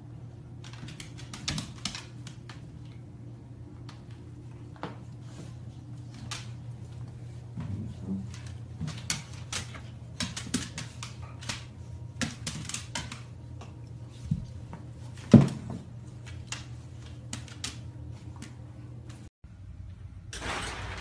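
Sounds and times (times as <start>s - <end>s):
dog claws scrabbling on wood floor: 0.5s - 3.1s, 3.7s - 19.2s.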